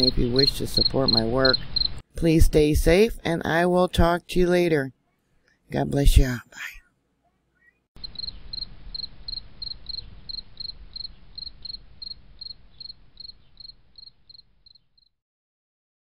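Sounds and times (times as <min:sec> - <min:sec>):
cricket chirping: 0:00.0 - 0:02.0, 0:08.0 - 0:15.1.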